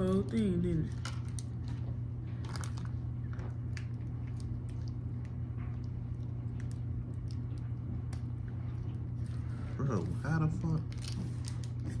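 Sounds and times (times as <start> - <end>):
plastic packets rustling and clicking: 0.0 - 5.3, 10.6 - 12.0
steady low hum: 0.0 - 12.0.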